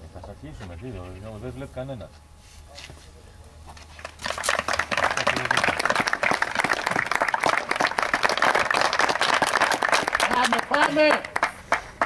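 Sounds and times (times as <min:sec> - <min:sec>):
crowd applauding: 0:04.0 - 0:12.0.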